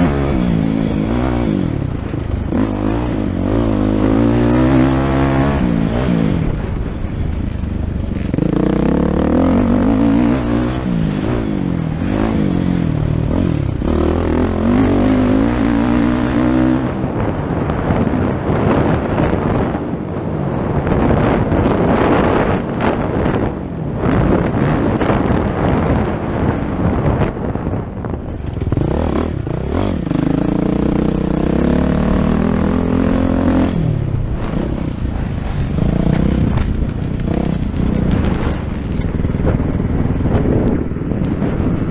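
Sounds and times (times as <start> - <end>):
motocross bike engine revving: 0.0 - 6.9, 8.0 - 17.7, 28.4 - 41.9
steady rushing noise: 0.0 - 41.9.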